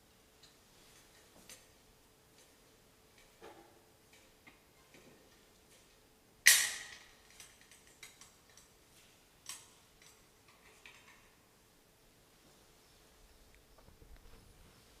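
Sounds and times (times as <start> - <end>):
metal clicks and clinks: 6.5 - 8.8, 9.4 - 11.3.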